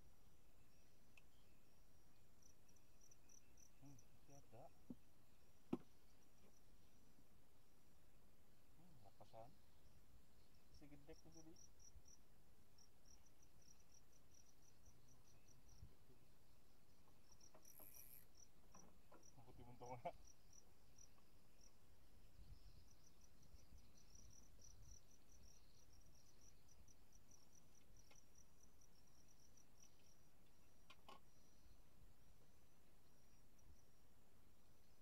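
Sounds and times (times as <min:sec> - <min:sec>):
insect chirping: 0:00.0 - 0:35.0.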